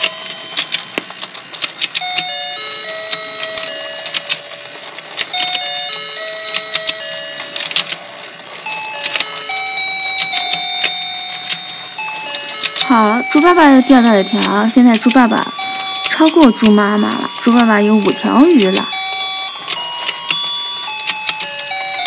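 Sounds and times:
plastic clicks: 0:00.0 - 0:02.3
electronic beeping tune: 0:08.6 - 0:22.0.

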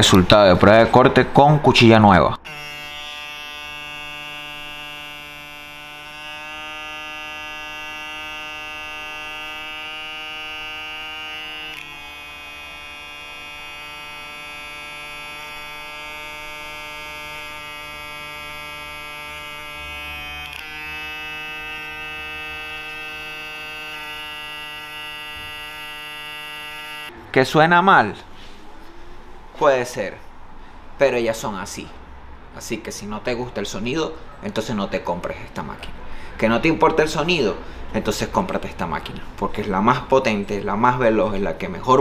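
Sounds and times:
hair clipper buzzing: 0:02.4 - 0:27.2.

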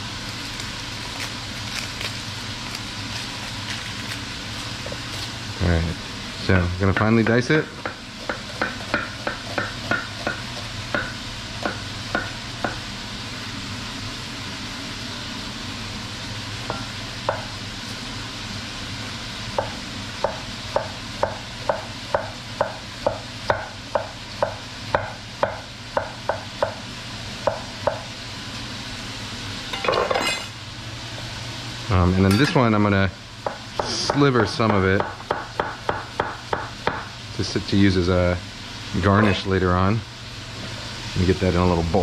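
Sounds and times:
pork sizzling in a pot: 0:00.0 - 0:42.0
knife chopping on cutting board: 0:07.0 - 0:12.8.

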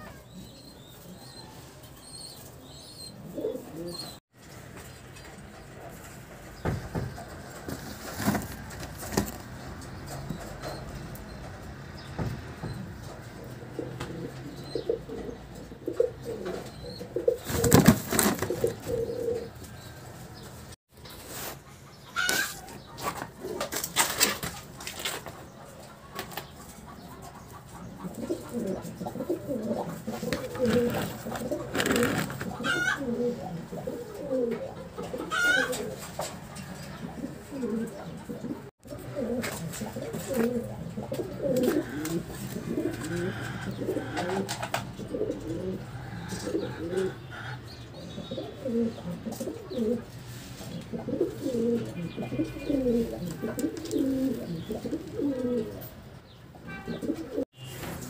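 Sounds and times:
pigeons cooing: 0:00.0 - 0:04.2, 0:04.8 - 0:20.7, 0:21.4 - 0:57.5
wing flaps: 0:30.2 - 0:32.6.

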